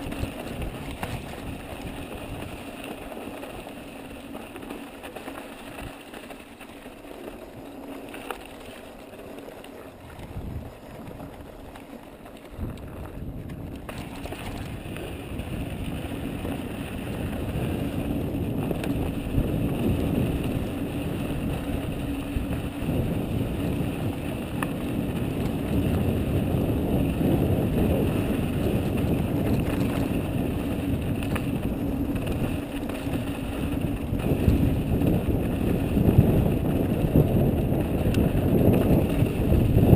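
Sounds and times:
wind on microphone: 0.0 - 2.6, 10.0 - 11.8, 12.4 - 39.9
bike tyres rumbling on dirt: 0.0 - 39.9.

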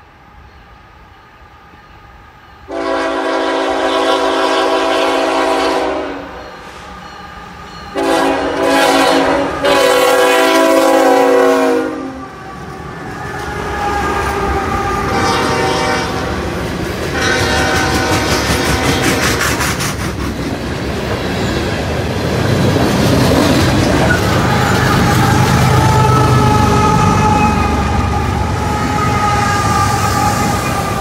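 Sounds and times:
diesel locomotives rumbling: 2.0 - 31.0
locomotive horn blasts: 2.7 - 6.4, 8.0 - 12.6, 13.8 - 19.4, 24.1 - 31.0
train wheels clattering over joints: 16.8 - 24.6.

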